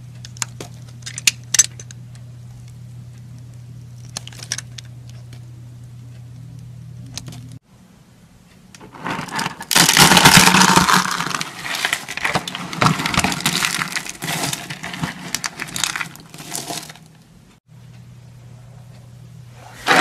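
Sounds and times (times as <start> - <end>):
soap shavings crunching: 9.0 - 17.1.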